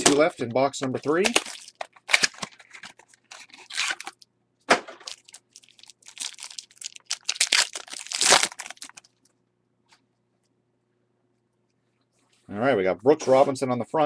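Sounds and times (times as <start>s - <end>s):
foil wrapper tearing and crinkling: 1.1s - 4.2s, 5.0s - 9.2s.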